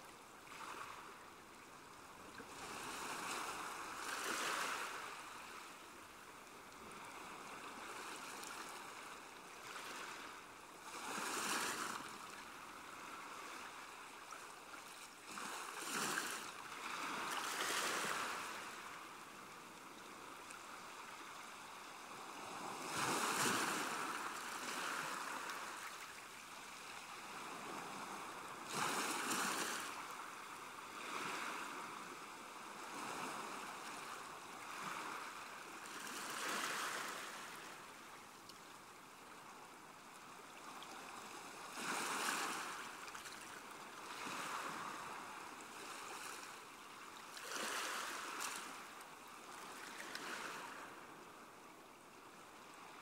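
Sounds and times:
sea water lapping and splashing: 0.4 - 51.4
wave washing: 21.9 - 32.0.

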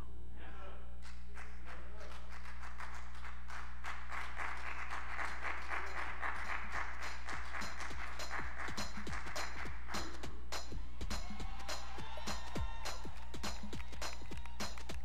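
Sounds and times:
congregation applauding: 1.3 - 10.0, 11.5 - 15.0.

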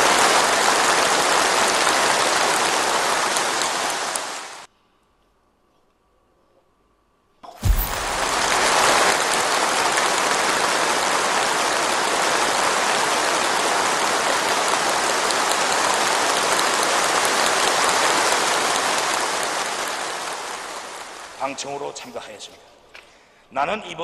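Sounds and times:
audience applauding: 0.0 - 4.2, 7.6 - 21.4.

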